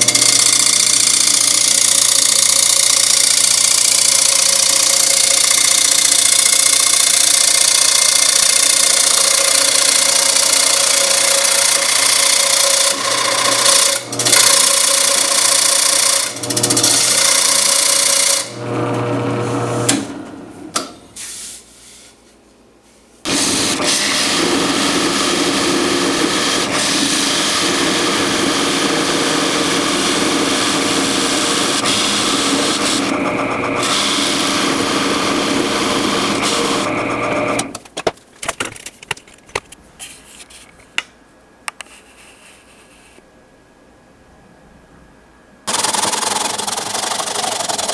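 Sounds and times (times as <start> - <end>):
lathe motor hum: 0.0 - 20.4, 23.3 - 37.7, 45.7 - 47.9.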